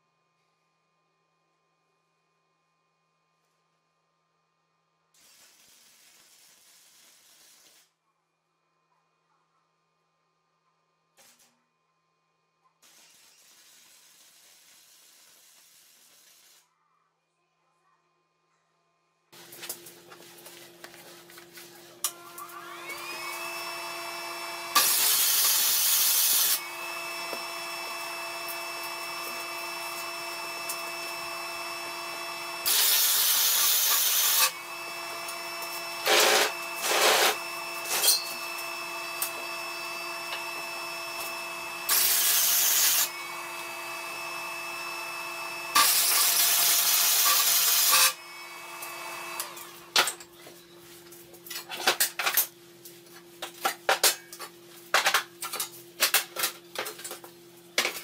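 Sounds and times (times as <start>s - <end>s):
welding arc crackling and hissing: 5.2s - 8.0s, 12.8s - 16.7s, 24.8s - 26.6s, 32.6s - 34.5s, 41.9s - 43.1s, 45.8s - 48.2s.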